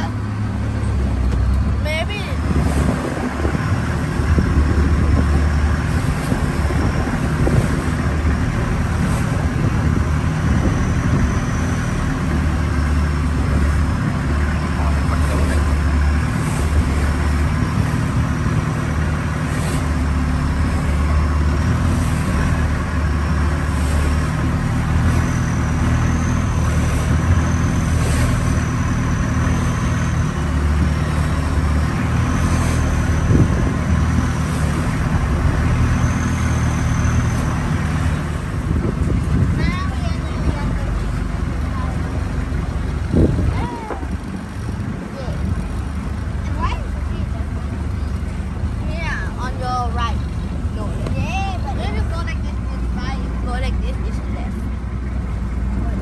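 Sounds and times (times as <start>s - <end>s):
boat engine droning: 0.0s - 56.0s.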